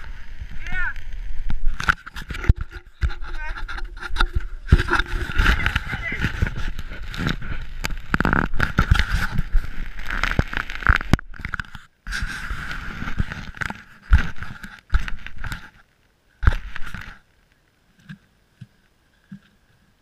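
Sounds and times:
wind rumbling on microphone: 0.0 - 15.6
camera handling scraping: 1.6 - 15.8.

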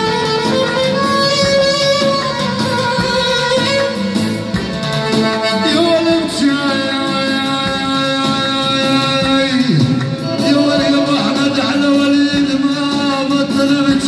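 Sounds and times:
electronic keyboard melody: 0.0 - 14.0
man singing into a microphone: 5.4 - 14.0.

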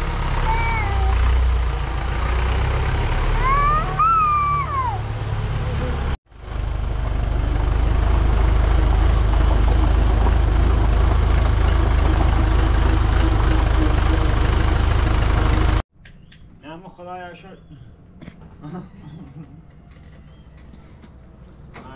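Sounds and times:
tractor engine rumbling: 0.0 - 16.2.

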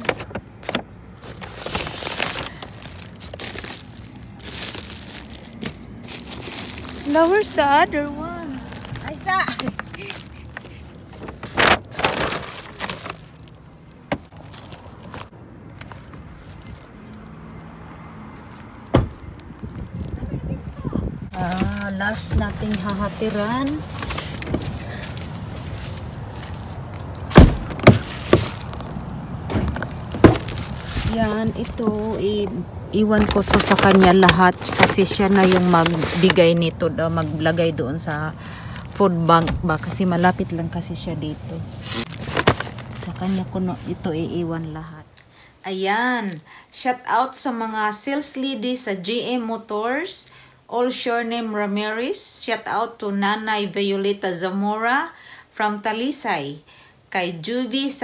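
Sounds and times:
paper bags crinkling and rustling: 0.0 - 20.1, 21.4 - 41.1, 41.8 - 43.9
car door clunks: 18.9 - 19.2.

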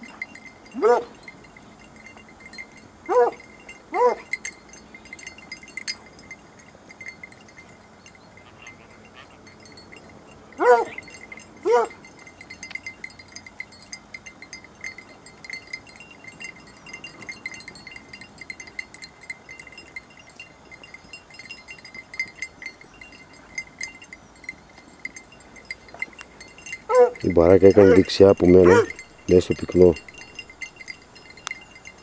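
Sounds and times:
small bells jingling: 0.0 - 32.0
dog yelp: 0.8 - 1.1, 3.1 - 4.3, 10.6 - 11.0, 11.6 - 12.0, 26.9 - 29.0.

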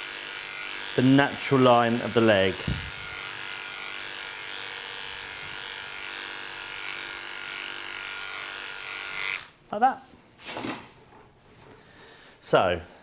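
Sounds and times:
electric clippers buzzing: 0.0 - 9.6.

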